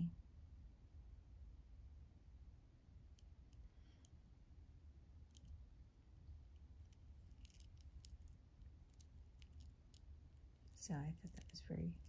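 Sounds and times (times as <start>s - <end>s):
low room hum: 0.0s - 12.0s
charms clicking together: 6.8s - 12.0s.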